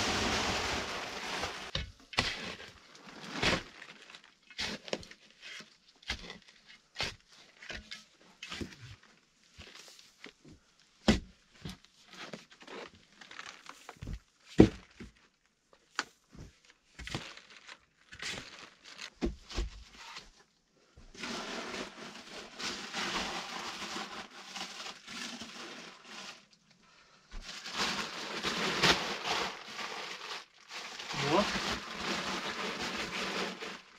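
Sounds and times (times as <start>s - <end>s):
tarpaulin rustling: 0.0s - 1.8s, 27.4s - 33.9s.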